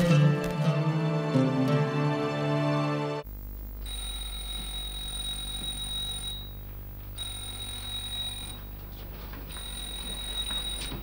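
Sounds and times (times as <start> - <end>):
low electrical hum: 3.2 - 11.0.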